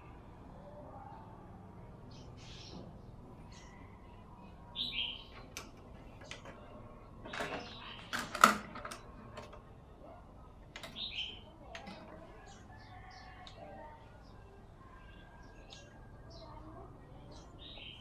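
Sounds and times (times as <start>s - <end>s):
bird chirping: 2.0s - 8.3s, 10.0s - 18.0s.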